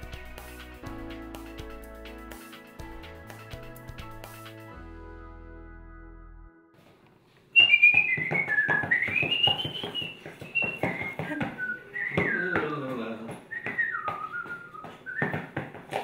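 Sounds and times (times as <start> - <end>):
person whistling a tune: 7.6 - 12.6, 13.5 - 15.5.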